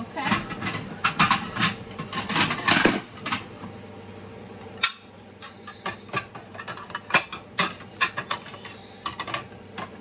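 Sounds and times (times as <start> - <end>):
ceramic plates clinking: 0.2 - 3.4, 5.7 - 10.0.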